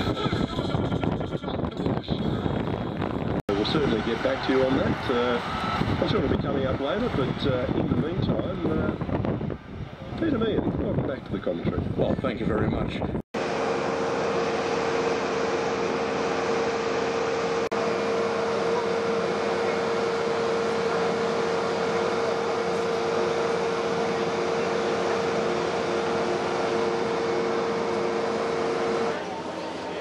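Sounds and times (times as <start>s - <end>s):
ground equipment whine and hum: 0.0s - 30.0s.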